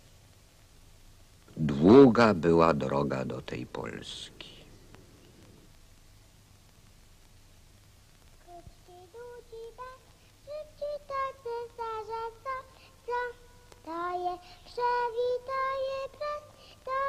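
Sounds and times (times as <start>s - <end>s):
high child-like voice singing: 8.4s - 17.0s.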